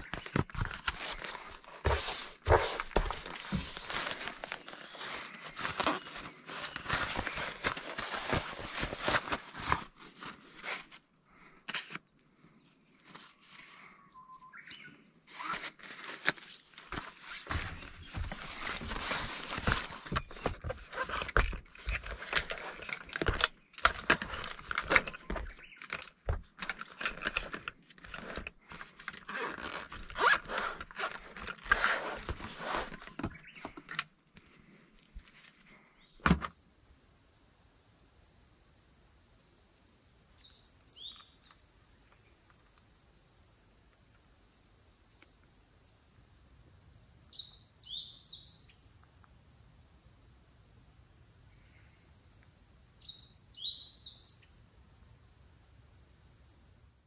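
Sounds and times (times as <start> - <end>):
items scraping and knocking: 0.0 - 11.0, 15.3 - 34.0, 36.2 - 36.5
nylon sacks rustling: 0.0 - 11.0, 15.3 - 34.0
insects chirring: 0.0 - 57.0.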